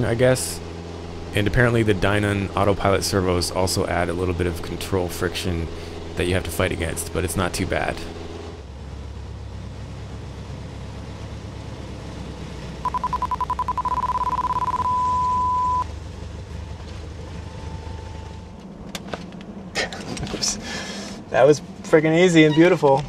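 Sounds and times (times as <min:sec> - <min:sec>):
aircraft engine and propeller droning: 0:00.0 - 0:23.0
warning tone beeping: 0:12.8 - 0:15.8.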